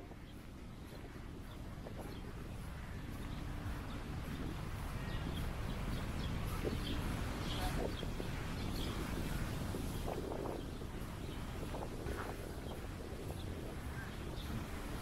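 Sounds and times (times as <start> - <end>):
faint distant voices: 0.0 - 15.0
wind rumble on microphone: 0.0 - 15.0.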